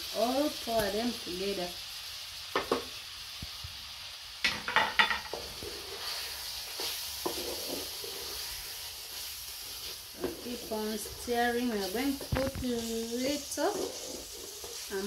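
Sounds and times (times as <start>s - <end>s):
liver sizzling in metal pot: 0.0s - 15.0s
wooden spoon scraping pot: 5.0s - 15.0s.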